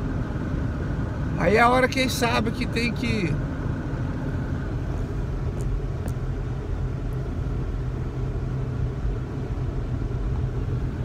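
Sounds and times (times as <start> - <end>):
car engine and tyres on snow: 0.0 - 11.0.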